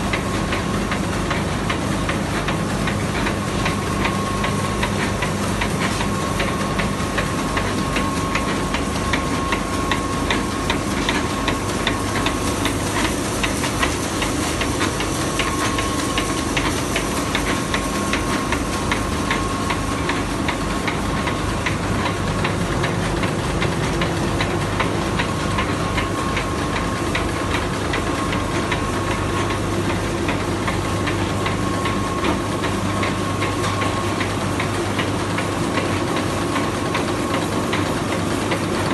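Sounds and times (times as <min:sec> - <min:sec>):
machine hum: 0:00.0 - 0:38.9
printing press clattering: 0:00.0 - 0:38.9.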